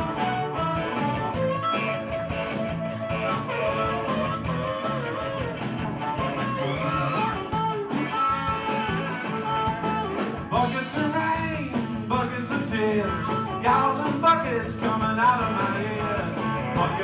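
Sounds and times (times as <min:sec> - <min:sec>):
harmonica through microphone: 0:00.0 - 0:17.0
live band playing: 0:00.0 - 0:17.0.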